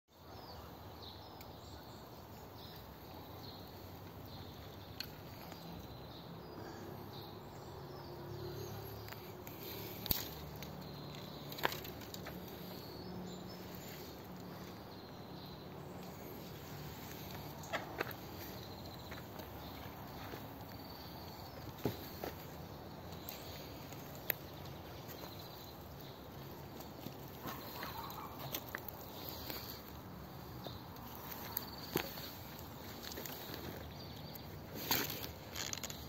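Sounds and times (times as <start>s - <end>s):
faint insect calls: 0.2s - 36.0s
faint bird calls: 27.3s - 33.8s.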